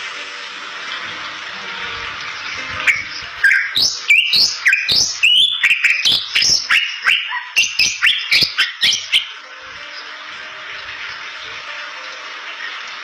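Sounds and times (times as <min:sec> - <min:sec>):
bird whistles and chirps: 0:02.7 - 0:09.4.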